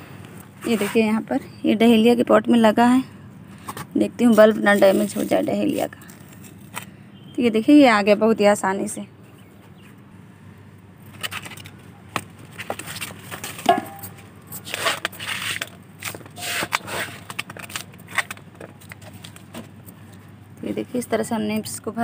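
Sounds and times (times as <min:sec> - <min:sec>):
potting mix scraping and rustling: 0:00.6 - 0:01.2, 0:03.7 - 0:06.8, 0:12.4 - 0:20.0.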